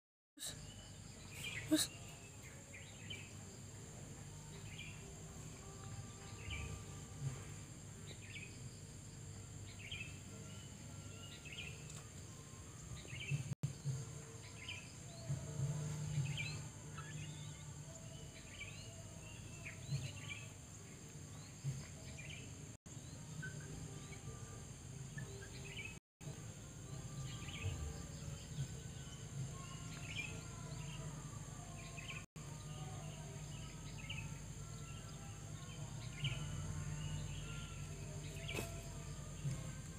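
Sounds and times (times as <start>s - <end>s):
small birds chirping: 0.4s - 3.4s, 33.0s - 39.9s.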